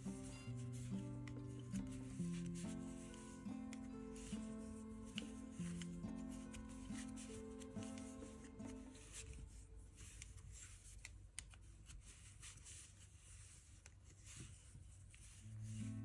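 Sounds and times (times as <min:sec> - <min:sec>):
background music: 0:00.0 - 0:10.3, 0:15.5 - 0:16.0
wooden knitting needles clicking: 0:00.0 - 0:12.0
yarn rubbing: 0:00.0 - 0:16.0.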